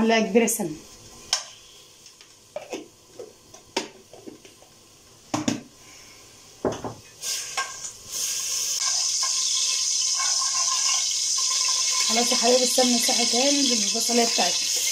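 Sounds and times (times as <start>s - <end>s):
ghee sizzling in pot: 5.7s - 14.9s.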